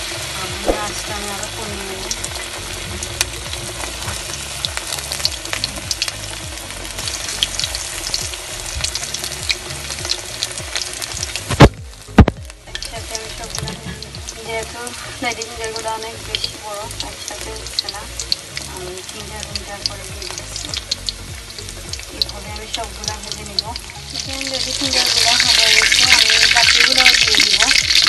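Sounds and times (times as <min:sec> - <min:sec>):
food deep-frying in hot oil: 0:00.0 - 0:28.0.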